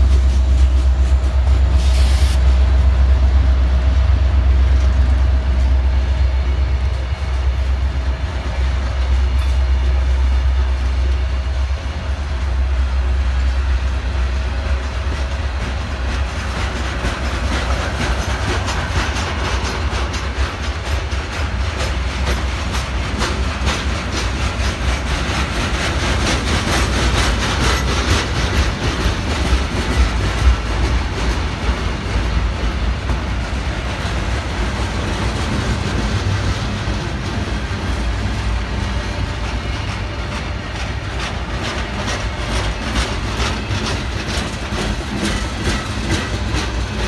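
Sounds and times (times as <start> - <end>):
train wheels rumbling on rail: 0.0 - 47.0
wheels clicking over rail joints: 14.6 - 47.0.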